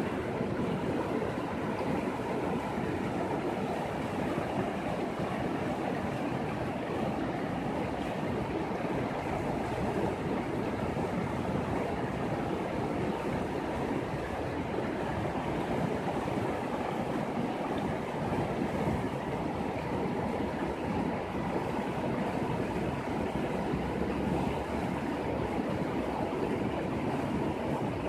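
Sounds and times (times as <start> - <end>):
river rushing over stones: 0.0 - 28.0.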